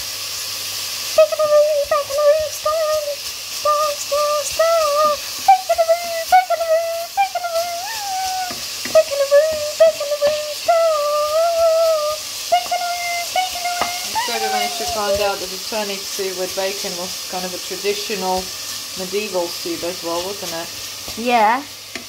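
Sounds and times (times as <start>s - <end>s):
bacon sizzling in frying pan: 0.0s - 22.0s
person humming: 1.2s - 15.4s.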